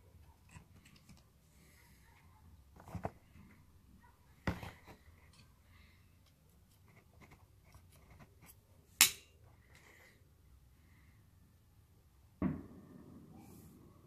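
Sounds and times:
sharp pistol snap: 0:09.0 - 0:09.3.

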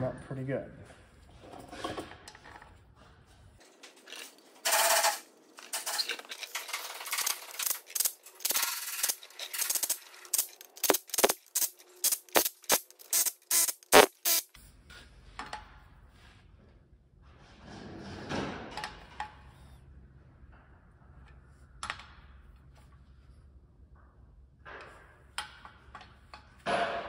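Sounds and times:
impact tool running bolts: 0:04.1 - 0:14.5.

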